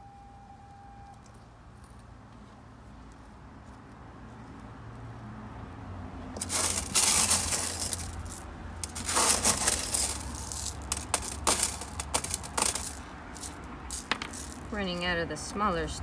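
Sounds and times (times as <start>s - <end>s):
pebbles clattering: 6.4s - 15.0s.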